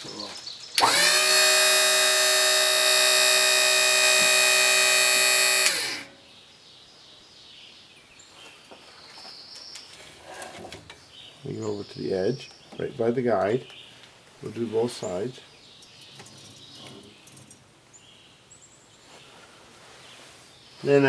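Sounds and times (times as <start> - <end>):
electric motor whining: 0.8 - 6.1.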